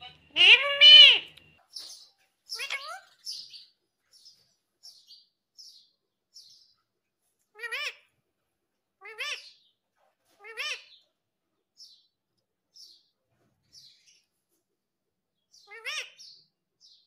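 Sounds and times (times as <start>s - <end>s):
parakeet calling: 0.0s - 1.9s, 2.5s - 3.6s, 7.6s - 8.1s, 9.0s - 9.7s, 15.6s - 16.4s.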